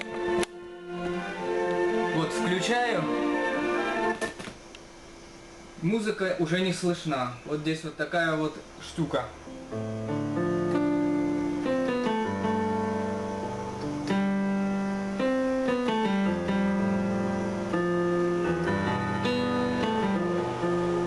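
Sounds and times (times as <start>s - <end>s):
synthesizer keyboard chords: 0.0s - 4.3s, 9.4s - 21.0s.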